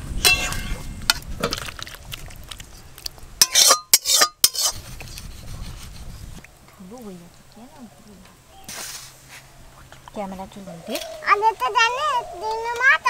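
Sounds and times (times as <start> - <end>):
metal spatula scraping a wok: 3.4 - 6.0.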